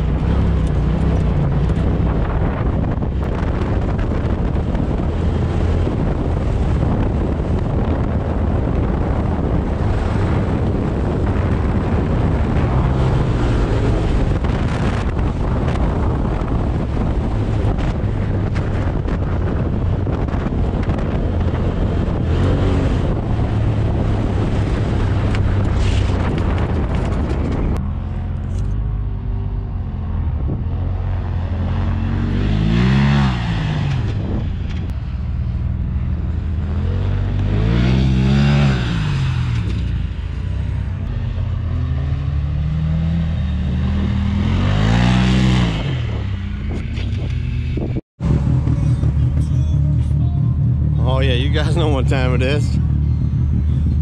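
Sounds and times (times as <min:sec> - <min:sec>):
off-road vehicle engine running hard: 0:00.0 - 0:54.0
wind buffeting microphone: 0:00.0 - 0:54.0.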